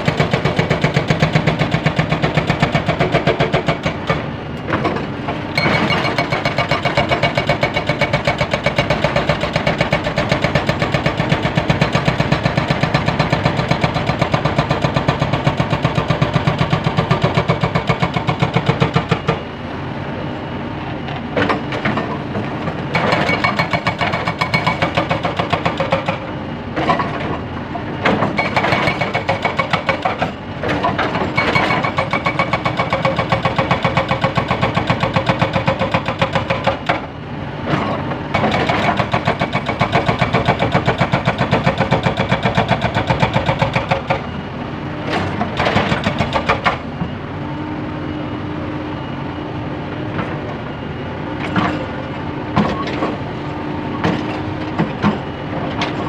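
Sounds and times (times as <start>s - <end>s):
hydraulic breaker hammering rock: 0.0s - 19.4s, 22.9s - 27.4s, 28.0s - 37.1s, 37.7s - 44.3s, 45.0s - 46.8s
excavator diesel engine: 0.0s - 56.0s.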